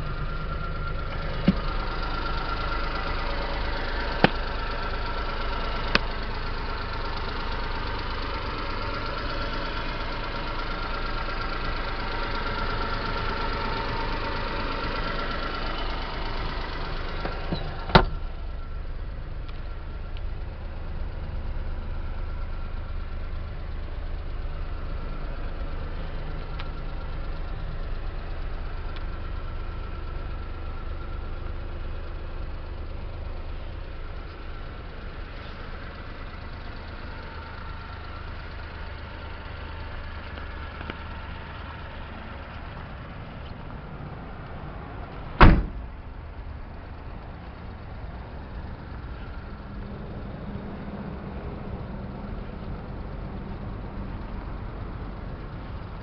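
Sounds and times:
truck engine idling: 0:00.0 - 0:56.0
truck door slamming: 0:17.5 - 0:18.2, 0:45.4 - 0:45.9.

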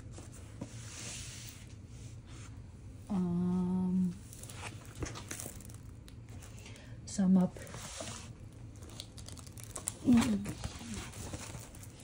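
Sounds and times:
hands rustling plastic film: 0:08.4 - 0:12.0.

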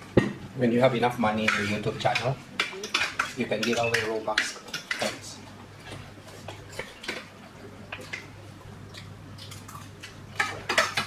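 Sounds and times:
steady low hum: 0:00.0 - 0:11.0
cutlery clinking on plates: 0:01.4 - 0:05.2.

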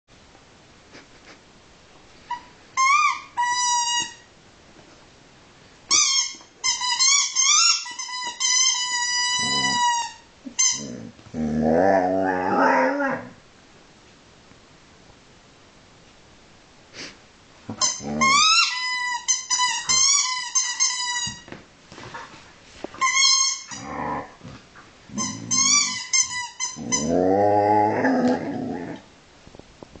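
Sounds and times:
puppy moaning call: 0:09.3 - 0:13.4, 0:17.7 - 0:18.8, 0:23.6 - 0:29.1.

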